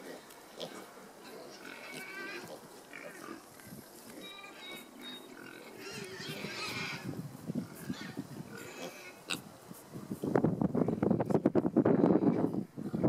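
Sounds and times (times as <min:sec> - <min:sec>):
piglets grunting: 0:00.0 - 0:09.4
piglets shuffling in stony dirt: 0:00.0 - 0:13.0.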